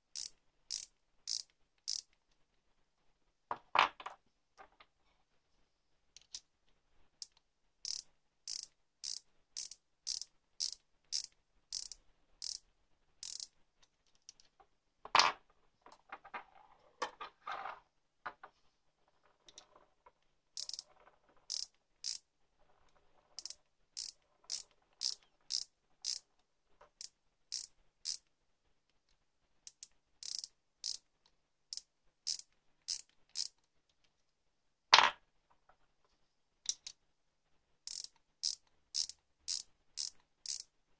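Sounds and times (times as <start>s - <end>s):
micrometer ratchet clicking: 0.1s - 2.1s, 7.2s - 12.6s, 13.2s - 13.5s, 20.6s - 20.8s, 21.5s - 22.2s, 23.4s - 26.2s, 27.0s - 28.2s, 29.7s - 31.0s, 31.7s - 33.6s, 37.9s - 40.6s.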